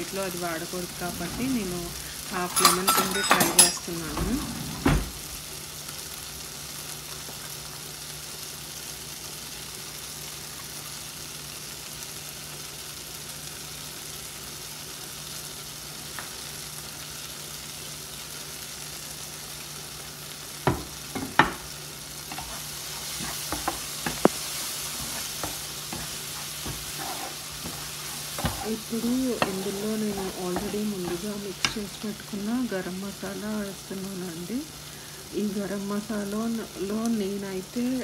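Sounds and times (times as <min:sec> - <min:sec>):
food sizzling in butter: 0:00.0 - 0:38.0
wooden spoon knocking on pan: 0:20.6 - 0:21.7, 0:23.2 - 0:31.8.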